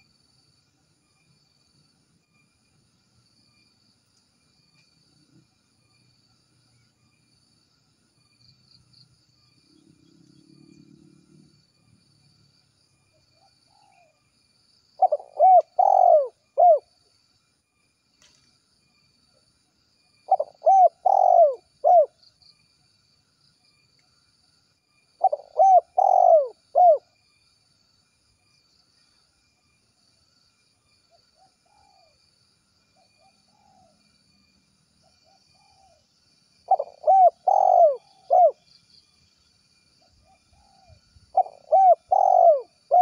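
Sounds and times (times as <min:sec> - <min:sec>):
dove cooing: 0:15.0 - 0:16.9, 0:20.3 - 0:22.2, 0:25.2 - 0:27.1, 0:35.2 - 0:36.0, 0:36.7 - 0:38.6, 0:40.2 - 0:43.0.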